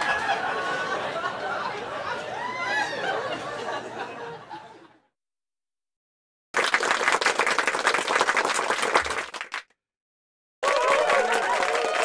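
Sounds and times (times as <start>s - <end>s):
clapping: 6.6s - 9.8s, 10.6s - 12.0s.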